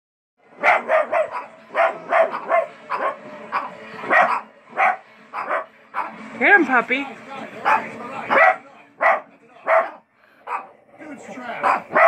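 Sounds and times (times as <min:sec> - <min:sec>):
dog barking: 0:00.6 - 0:06.2, 0:07.6 - 0:10.8, 0:11.6 - 0:12.0.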